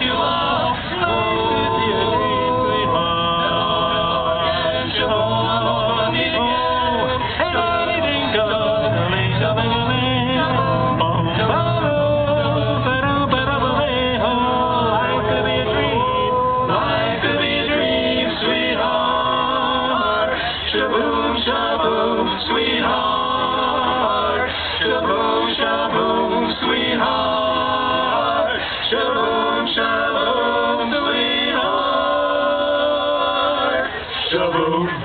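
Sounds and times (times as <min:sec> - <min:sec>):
male vocal group singing in harmony: 0:00.0 - 0:35.0.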